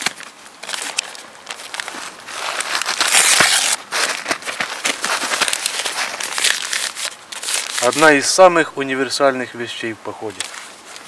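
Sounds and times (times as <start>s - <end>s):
paper crumpling: 0.0s - 8.4s, 10.3s - 11.0s
paper and twigs rustling: 0.0s - 8.6s, 10.2s - 11.0s.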